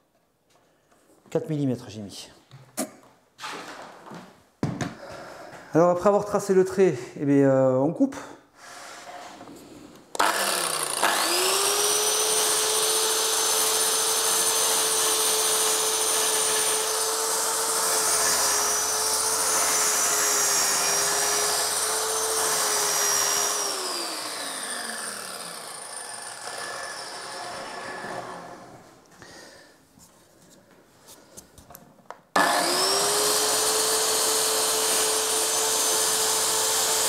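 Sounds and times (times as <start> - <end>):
circular saw whining: 10.2 - 28.8, 32.4 - 37.0
saw cutting through board: 10.2 - 28.8, 32.4 - 37.0.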